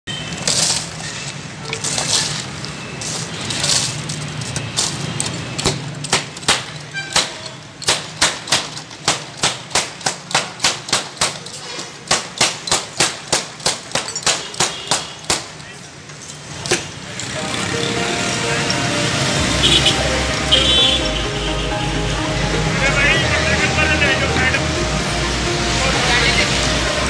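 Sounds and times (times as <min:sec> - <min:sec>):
glass bottles clacking: 0:13.8 - 0:14.6.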